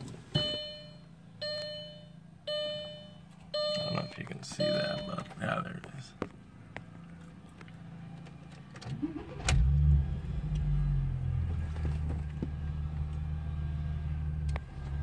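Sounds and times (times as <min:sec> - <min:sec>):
car engine idling: 0:00.0 - 0:15.0
car engine cranking: 0:07.0 - 0:13.4.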